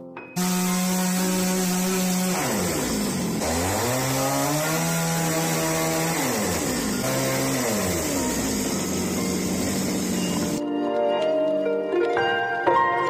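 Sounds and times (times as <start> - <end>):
chainsaw cutting wood: 0.4 - 10.6.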